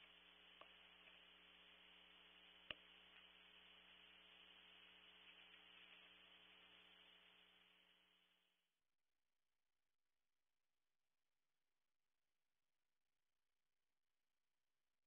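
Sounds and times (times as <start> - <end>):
faint clicks: 0.0 - 7.6
electrical hum and hiss: 0.0 - 8.5.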